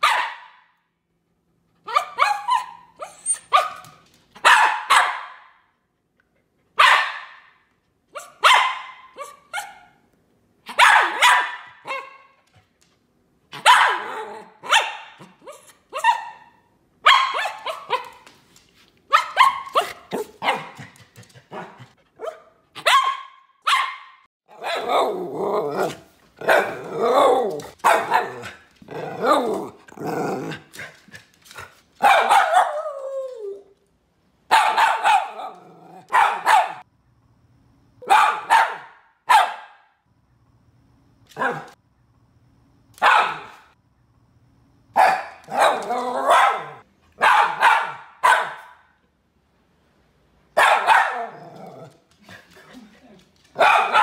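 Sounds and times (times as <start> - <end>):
dog barking: 0.0 - 0.8, 1.8 - 5.7, 6.8 - 10.0, 10.7 - 12.4, 13.5 - 18.2, 19.1 - 28.6, 32.0 - 32.9, 34.5 - 36.8, 38.0 - 40.0, 41.4 - 41.8, 43.0 - 43.8, 45.0 - 49.0, 50.6 - 51.6, 53.5 - 54.0.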